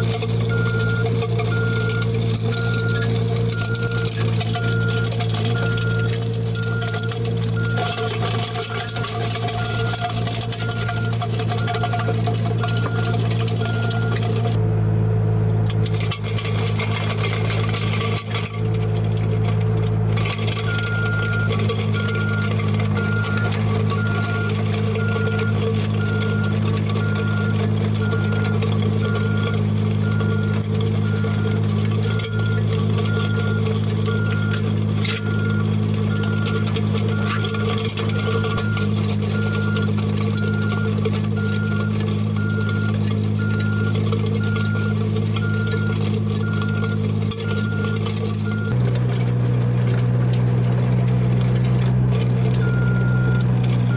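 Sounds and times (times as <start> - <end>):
power rake tilling soil: 0.0 - 14.8, 15.4 - 53.9
skid steer engine running: 0.0 - 53.9
high beeps: 0.5 - 8.1, 10.6 - 14.2, 20.7 - 38.8, 39.4 - 48.8.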